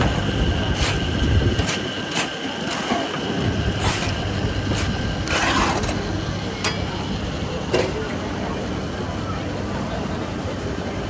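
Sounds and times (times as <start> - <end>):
chestnuts grinding in sand: 0.0 - 6.3.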